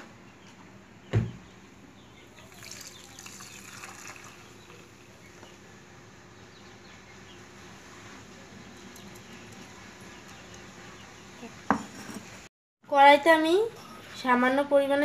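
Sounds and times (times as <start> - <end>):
batter pouring into tin: 2.6 - 4.4.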